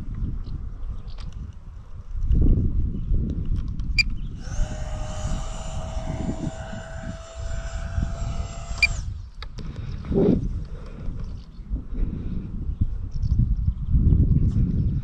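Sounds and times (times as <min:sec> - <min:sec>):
wind rumbling on microphone: 0:00.0 - 0:15.0
model jet fan whining: 0:04.1 - 0:09.6.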